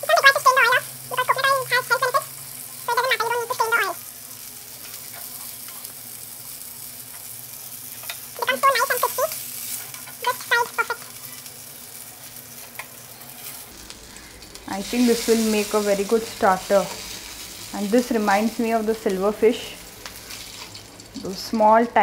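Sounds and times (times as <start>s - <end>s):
fish sizzling in a frying pan: 0.0s - 22.0s
high-pitched voice-like sound: 2.9s - 4.0s, 8.4s - 9.3s, 10.2s - 11.0s.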